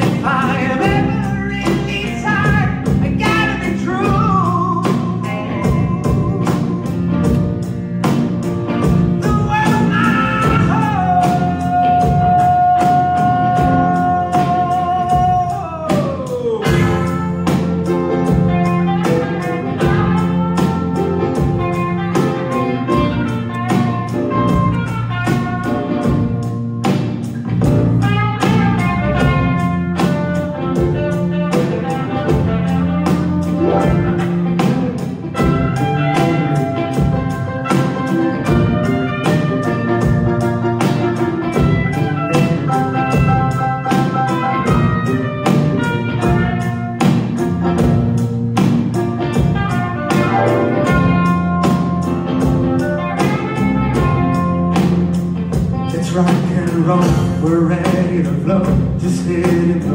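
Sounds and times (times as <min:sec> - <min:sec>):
drum beat: 0:00.0 - 0:59.9
electric guitars: 0:00.0 - 0:59.9
keyboards: 0:00.0 - 0:59.9.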